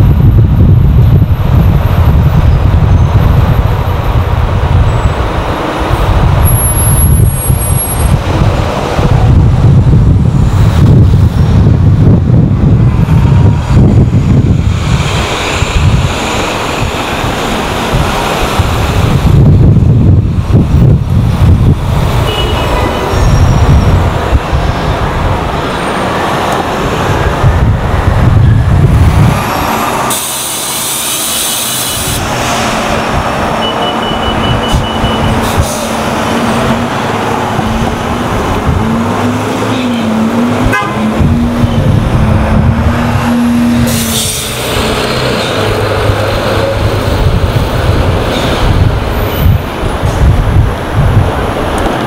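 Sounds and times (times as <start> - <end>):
wind buffeting microphone: 0.0 - 30.4, 31.9 - 52.0
buses and traffic: 0.0 - 52.0
short horn toot: 40.7 - 41.1.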